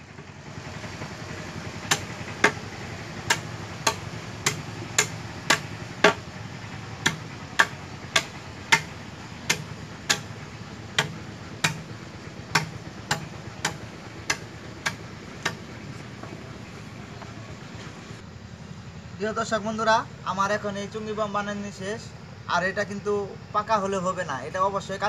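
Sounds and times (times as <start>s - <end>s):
knife chopping bamboo: 1.3s - 6.3s, 7.0s - 16.4s.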